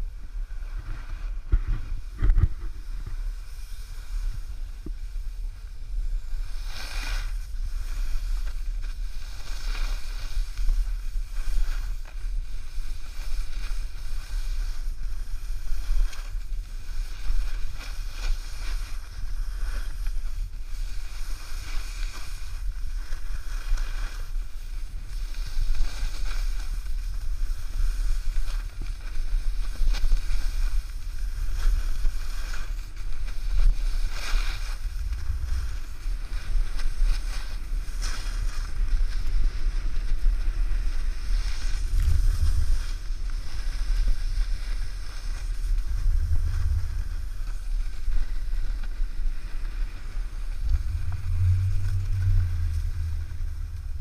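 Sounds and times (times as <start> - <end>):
ski edges scraping packed snow: 0.6 - 54.0
wind buffeting microphone: 31.0 - 54.0.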